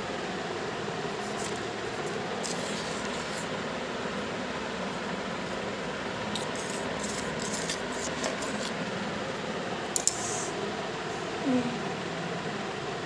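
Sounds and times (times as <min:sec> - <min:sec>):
electric fan whooshing: 0:00.0 - 0:13.0.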